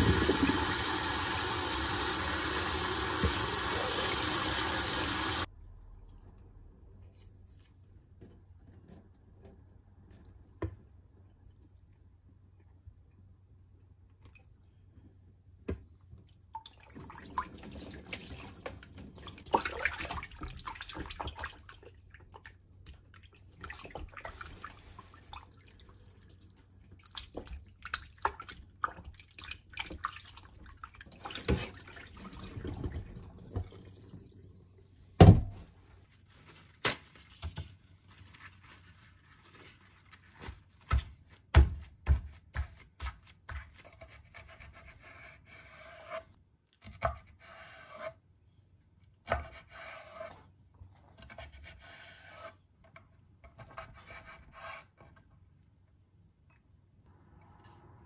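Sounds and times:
water splashing in a sink: 0:00.0 - 0:05.5, 0:15.8 - 0:35.4.

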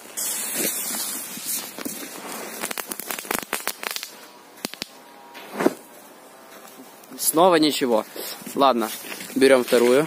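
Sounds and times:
fuse hissing and crackling: 0:00.0 - 0:05.7.

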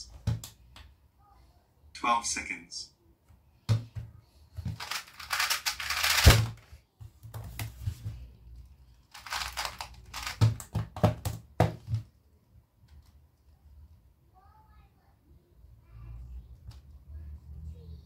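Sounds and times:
puzzle cube turning: 0:04.6 - 0:06.7, 0:09.0 - 0:11.2.

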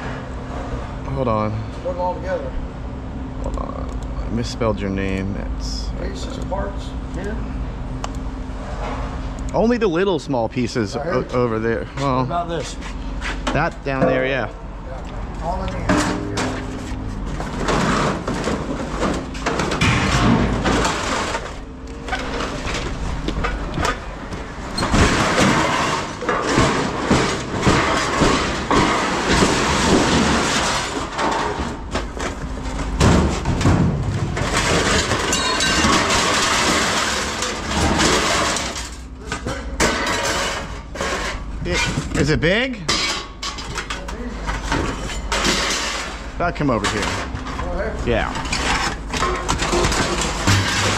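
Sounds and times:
scrap metal clattering: 0:15.8 - 0:42.1, 0:42.9 - 0:50.9.

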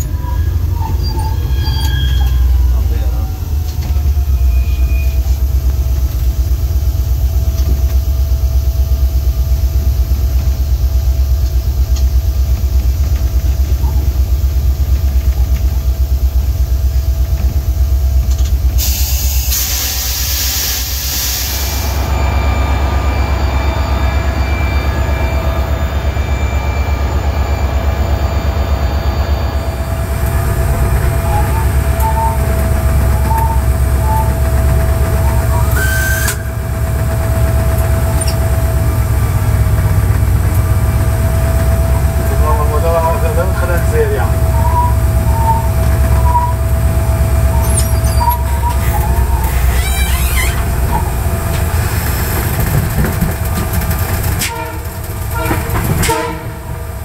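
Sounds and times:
diesel locomotive rumbling: 0:00.0 - 0:57.0
burst of hiss: 0:18.8 - 0:21.9
steady whine: 0:21.7 - 0:53.6.

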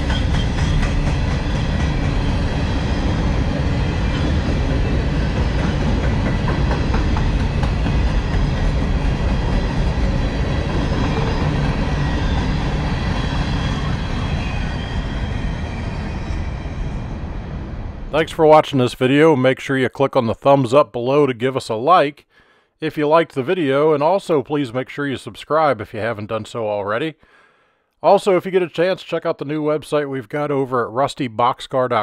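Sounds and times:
steel wheels rumbling on rail: 0:00.0 - 0:18.3.

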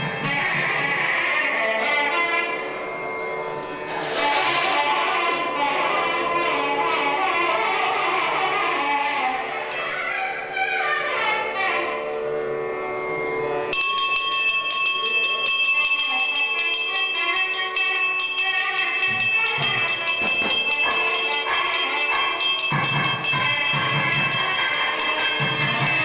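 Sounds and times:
hand bell ringing rapidly: 0:00.0 - 0:01.0, 0:13.7 - 0:26.0
instrumental music: 0:00.0 - 0:26.0.

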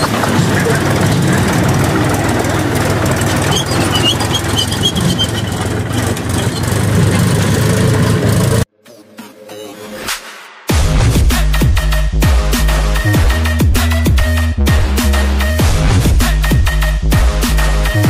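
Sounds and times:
tractor diesel engine: 0:00.0 - 0:08.7.

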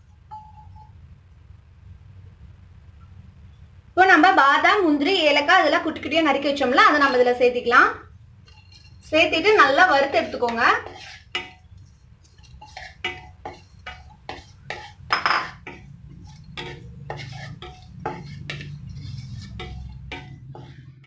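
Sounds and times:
steady low hum: 0:00.0 - 0:21.0
wooden spatula scraping a pan: 0:08.4 - 0:21.0.

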